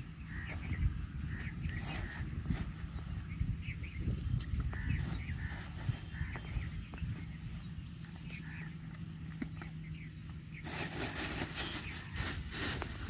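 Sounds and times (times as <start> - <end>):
faint chirps: 0.0 - 13.0
plastic bag crinkling: 10.6 - 13.0.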